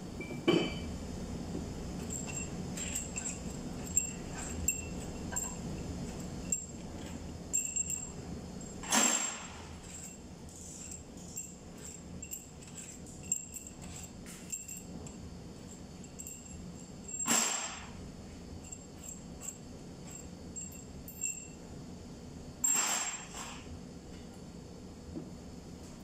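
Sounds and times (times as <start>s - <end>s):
small steel parts clinking: 2.0s - 8.2s, 8.9s - 15.2s.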